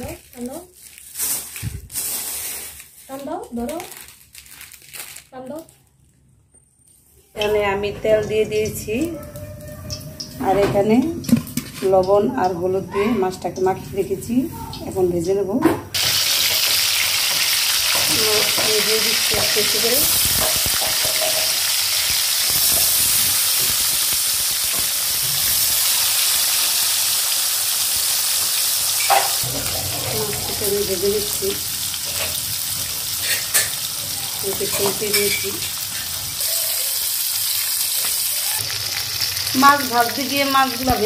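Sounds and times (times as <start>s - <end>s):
fish frying in hot oil: 16.0s - 41.0s.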